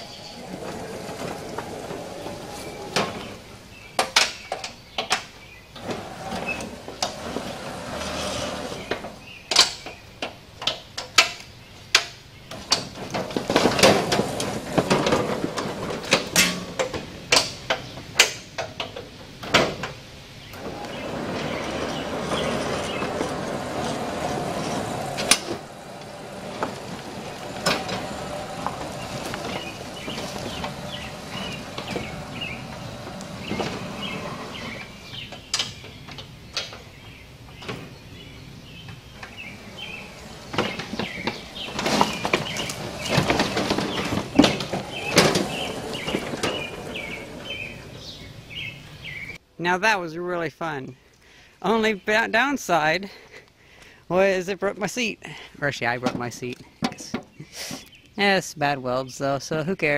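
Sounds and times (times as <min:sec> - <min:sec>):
wood and metal cracking: 0:00.0 - 0:11.4, 0:12.0 - 0:36.9, 0:38.9 - 0:48.5
electric tractor drive drone: 0:20.5 - 0:35.3.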